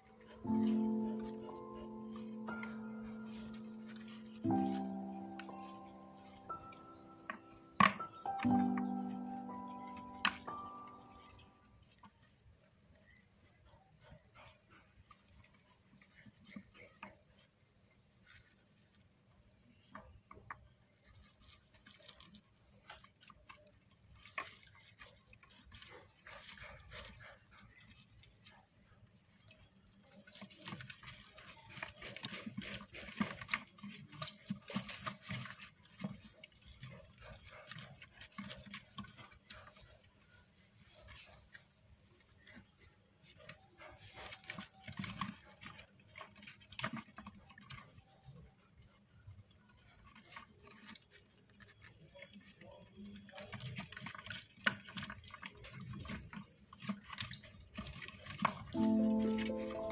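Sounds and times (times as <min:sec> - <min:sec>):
rustling wood shavings: 0:00.0 - 0:12.3.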